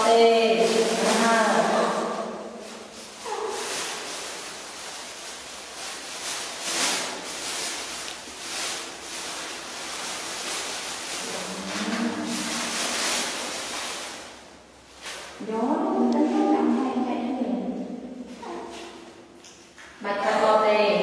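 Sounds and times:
plastic bag crinkling: 0:00.0 - 0:15.5.

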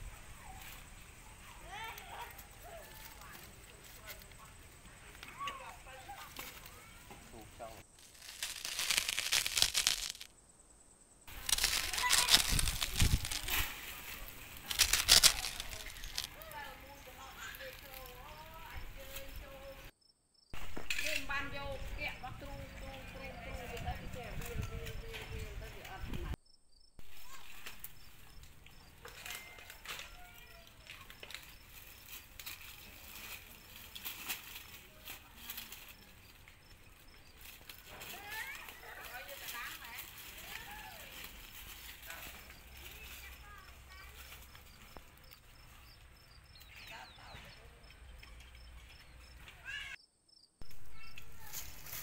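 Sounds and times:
rustling dry leaves: 0:00.0 - 0:10.3, 0:11.3 - 0:19.9, 0:20.6 - 0:26.3, 0:27.0 - 0:47.2, 0:50.6 - 0:52.0
pigs chewing and crunching: 0:11.3 - 0:18.6.

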